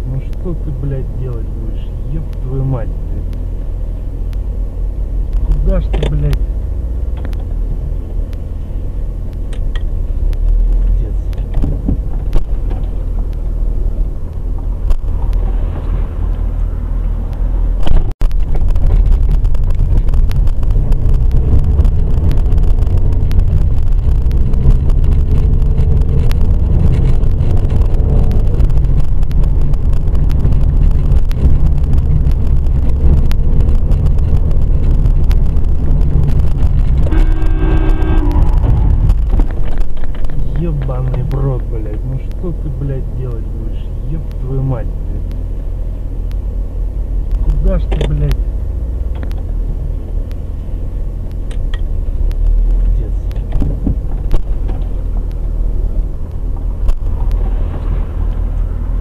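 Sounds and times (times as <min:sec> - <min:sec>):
car driving rumble: 0:00.0 - 0:59.0
car horn: 0:37.0 - 0:39.3.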